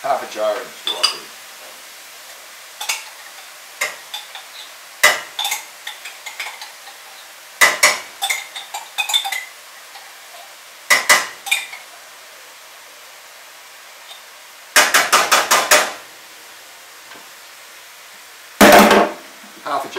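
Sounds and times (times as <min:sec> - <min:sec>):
spoon knocking against a pan: 0:03.8 - 0:06.6, 0:07.6 - 0:09.4, 0:10.9 - 0:11.8.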